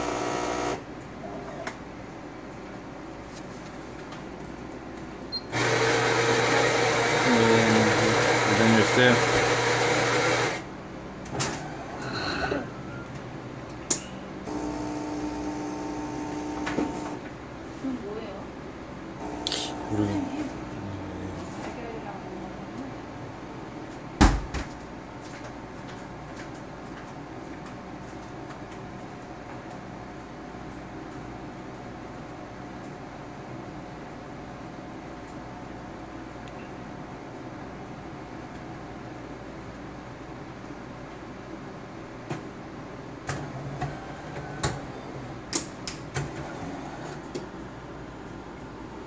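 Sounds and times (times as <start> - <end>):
coffee machine humming: 0.0 - 1.7, 5.4 - 10.8, 14.4 - 17.3, 19.1 - 23.2
steady low hum: 14.3 - 24.0.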